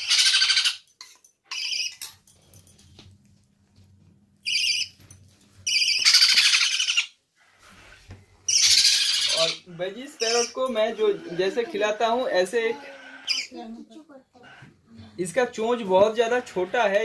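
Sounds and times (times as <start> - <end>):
parrot chicks begging calls: 0.0 - 0.9, 1.5 - 2.0, 4.4 - 5.0, 5.6 - 13.6, 14.4 - 14.7.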